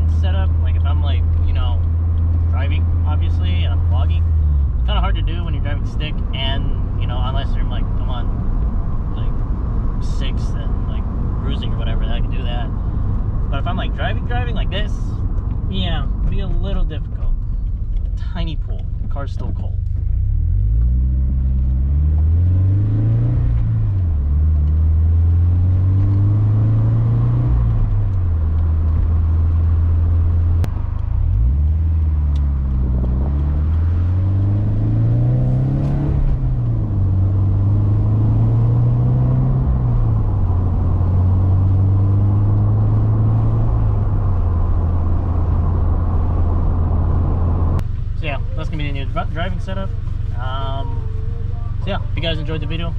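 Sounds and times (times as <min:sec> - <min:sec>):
car engine with gear changes: 0:00.0 - 0:52.9.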